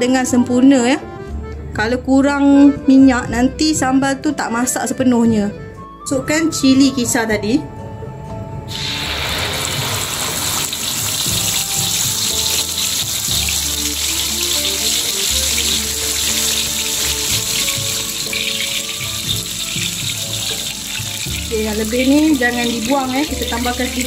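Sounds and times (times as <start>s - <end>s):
background music with beat: 1.0s - 24.0s
paste sizzling in hot oil: 8.7s - 24.0s.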